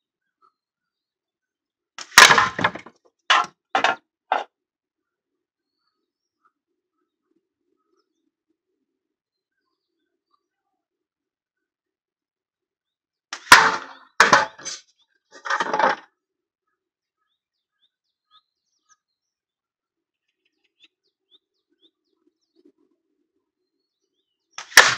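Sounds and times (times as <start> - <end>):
slingshot shot hitting can: 2.0 - 3.5, 13.4 - 14.8, 24.6 - 24.9
can knocked down rattling: 2.0 - 4.4
faint bird chirps: 16.6 - 24.6.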